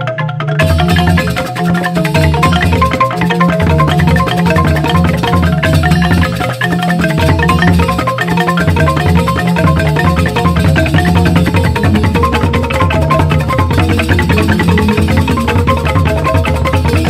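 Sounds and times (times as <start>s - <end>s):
bamboo xylophones struck with mallets: 0.0s - 17.0s.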